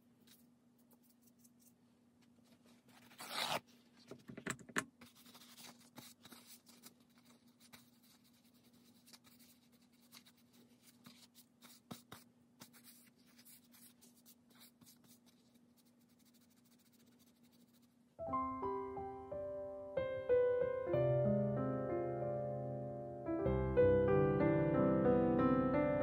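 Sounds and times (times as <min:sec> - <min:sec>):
nail wipe rubbing on nails: 0:05.0 - 0:18.0.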